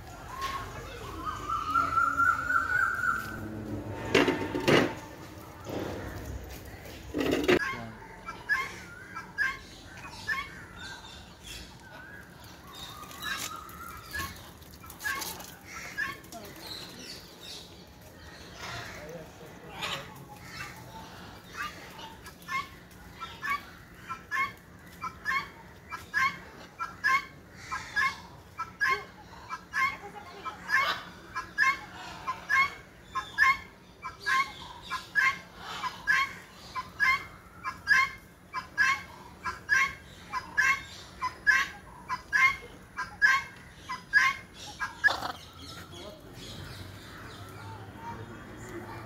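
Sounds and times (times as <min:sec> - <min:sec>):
bird calling: 0:00.2 - 0:04.6, 0:18.4 - 0:49.0.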